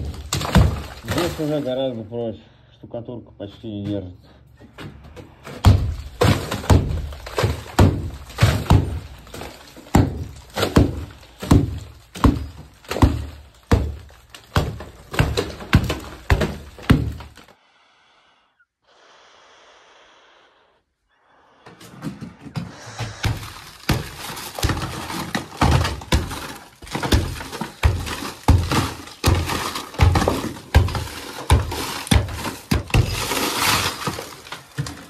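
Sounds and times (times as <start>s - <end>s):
plaster cracking and breaking: 0.0s - 2.0s, 5.5s - 17.5s, 21.9s - 35.0s
hatchet knocking plaster: 5.6s - 17.4s, 23.2s - 35.0s.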